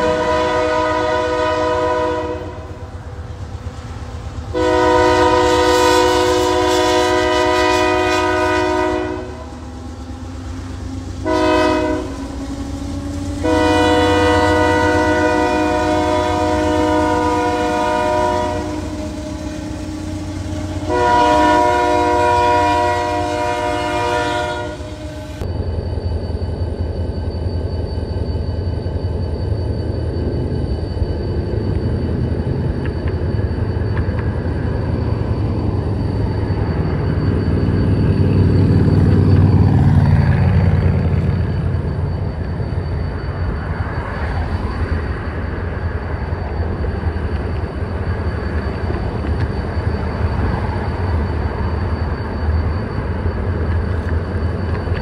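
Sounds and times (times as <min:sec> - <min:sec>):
locomotive air horn blasts: 0:00.0 - 0:03.0, 0:04.5 - 0:09.6, 0:11.2 - 0:12.4, 0:13.3 - 0:25.4
low train rumble: 0:00.0 - 0:55.0.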